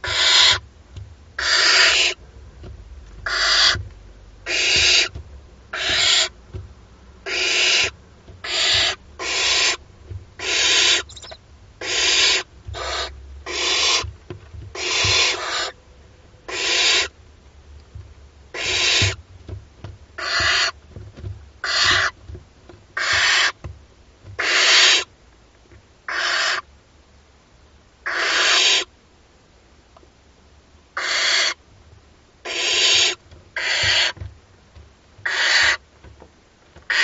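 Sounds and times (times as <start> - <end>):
owl chicks hissing begging calls: 0.0 - 0.6, 1.4 - 2.2, 3.3 - 3.8, 4.4 - 5.1, 5.7 - 6.3, 7.2 - 9.8, 10.4 - 14.0, 14.8 - 15.8, 16.5 - 17.1, 18.5 - 19.2, 20.2 - 20.8, 21.6 - 22.1, 23.0 - 23.6, 24.4 - 25.1, 26.1 - 26.6, 28.1 - 28.9, 31.0 - 31.6, 32.4 - 34.2, 35.2 - 35.8.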